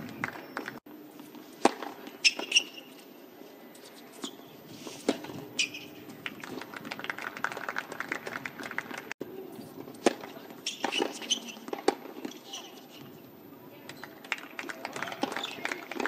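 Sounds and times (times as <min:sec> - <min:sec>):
tennis ball struck by racket: 0:01.6 - 0:02.8, 0:10.0 - 0:12.4
tennis shoes squeaking on court: 0:01.6 - 0:03.1, 0:03.7 - 0:06.2, 0:09.5 - 0:13.2.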